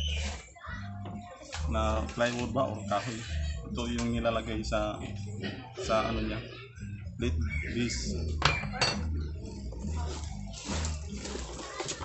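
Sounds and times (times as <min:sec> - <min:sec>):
background music with pulsing bass: 0:01.0 - 0:11.6
plastic packaging rustling: 0:09.9 - 0:12.0.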